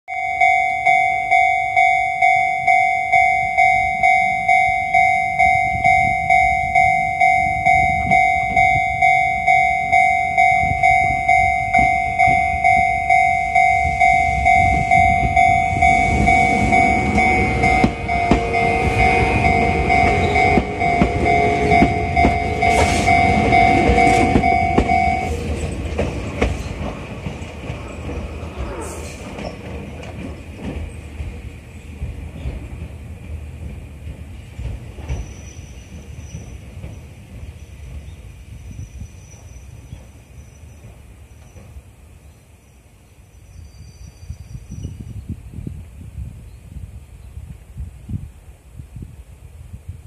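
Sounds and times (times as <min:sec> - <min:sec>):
level crossing warning bell: 0:00.1 - 0:25.7
train wheels rumbling over rails: 0:00.1 - 0:42.6.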